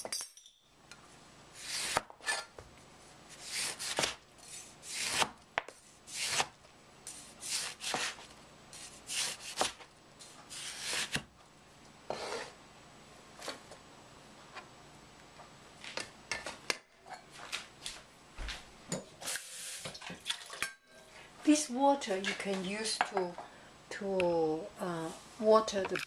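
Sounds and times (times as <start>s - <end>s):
cleaver slicing oranges: 3.3s - 6.5s, 7.1s - 9.8s, 10.5s - 11.3s.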